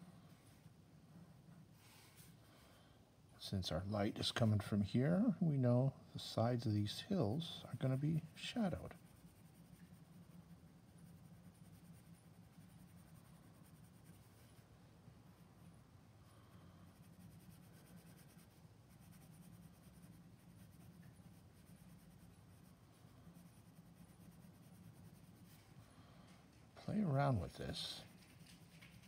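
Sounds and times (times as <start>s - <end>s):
low steady hum: 0.0s - 29.0s
pencil scratching on paper: 7.8s - 14.7s, 16.9s - 25.6s.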